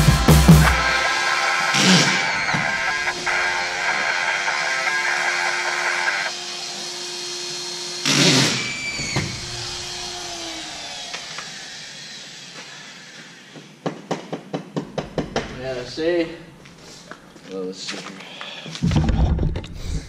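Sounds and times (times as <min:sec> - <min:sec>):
sharp knocks: 0:13.8 - 0:15.7.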